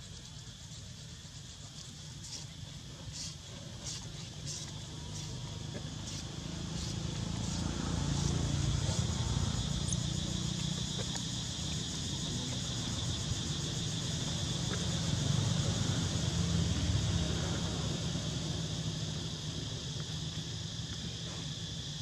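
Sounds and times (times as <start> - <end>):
high insect chorus: 0.0 - 22.0.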